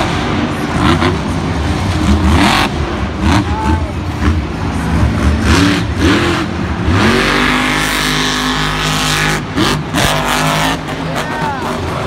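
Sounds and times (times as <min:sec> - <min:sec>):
monster truck engine revving: 0:00.0 - 0:12.0.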